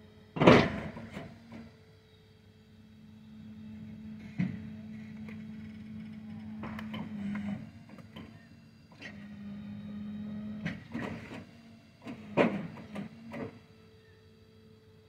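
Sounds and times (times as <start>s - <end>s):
motor humming: 0.9s - 11.0s.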